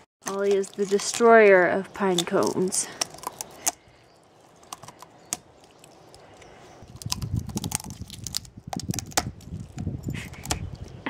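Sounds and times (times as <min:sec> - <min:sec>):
dog chewing pine cone: 0:02.1 - 0:10.8.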